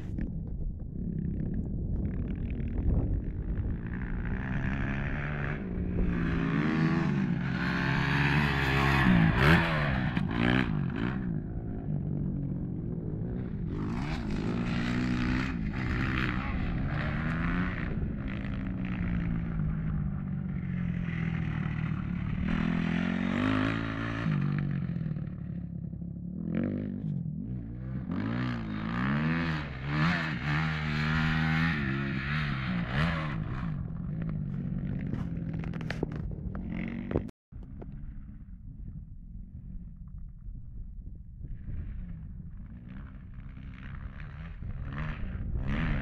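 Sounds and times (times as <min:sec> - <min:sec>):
motocross engine revving: 0:21.1 - 0:24.6.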